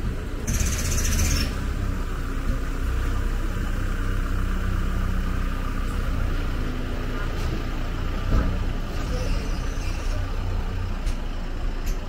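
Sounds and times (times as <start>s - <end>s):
street ambience: 0.0s - 12.0s
vehicle engine running: 0.0s - 12.0s.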